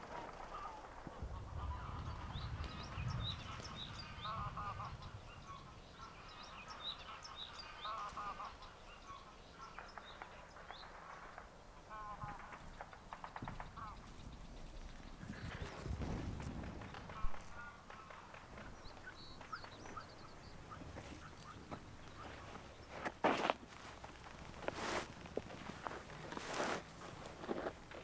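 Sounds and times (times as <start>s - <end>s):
waterfowl honking: 0.1s - 12.6s, 13.7s - 14.1s, 17.1s - 23.9s
small birds chirping: 0.3s - 28.0s.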